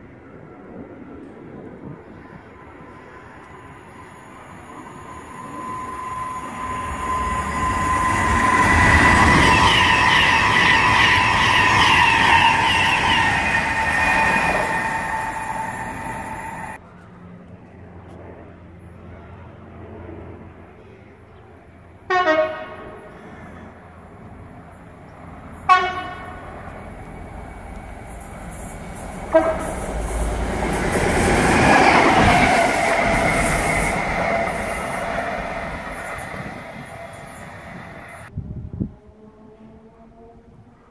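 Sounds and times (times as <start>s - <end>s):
train approaching at speed: 0.0s - 40.6s
locomotive horn blasts: 22.1s - 23.0s, 25.7s - 26.5s, 29.2s - 29.9s.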